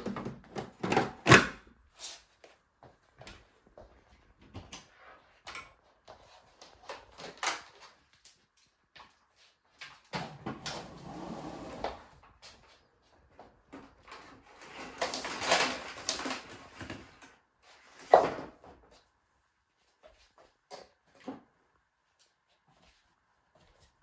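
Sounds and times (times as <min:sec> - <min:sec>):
hose scraping and rustling on floor: 0:10.6 - 0:12.9, 0:14.1 - 0:18.4.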